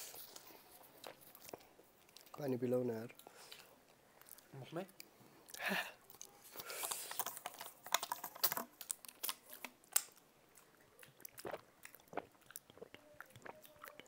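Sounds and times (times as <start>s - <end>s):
chewing and mouth clicks: 0.0s - 2.4s, 3.1s - 14.0s
person drinking water: 11.1s - 14.0s.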